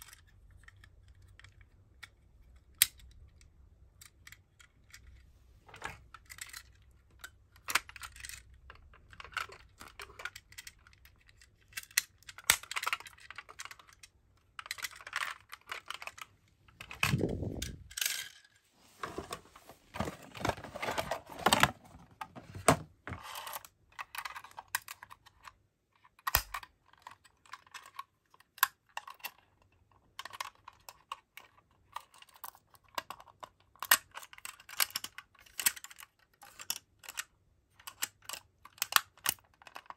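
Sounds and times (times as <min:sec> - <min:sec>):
toy parts clicking and clattering: 0:00.0 - 0:18.6, 0:20.0 - 0:39.9.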